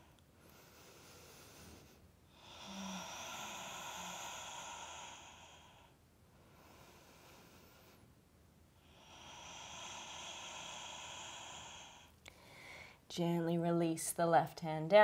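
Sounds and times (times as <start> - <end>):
woman breathing: 0.0 - 13.1.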